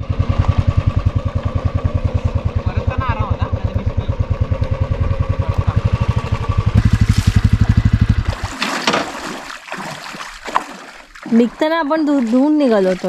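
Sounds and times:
motorcycle engine running: 0:00.0 - 0:08.6
water splashing and trickling: 0:06.8 - 0:13.0.

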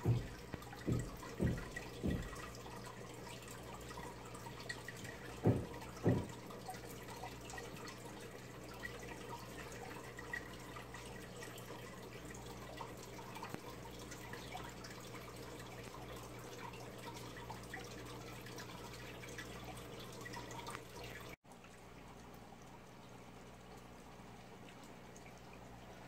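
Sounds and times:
dull thumps: 0:00.0 - 0:02.5, 0:05.4 - 0:06.5
aquarium water trickling: 0:00.0 - 0:26.0.

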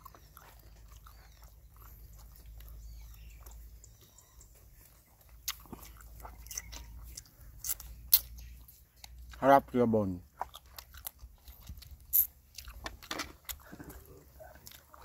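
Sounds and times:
man chewing: 0:00.0 - 0:09.4, 0:10.2 - 0:15.0.

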